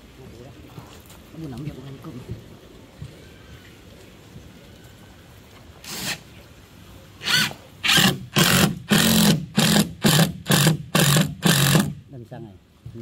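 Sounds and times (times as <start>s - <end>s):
power drill driving a screw: 5.9s - 6.2s, 7.2s - 12.0s.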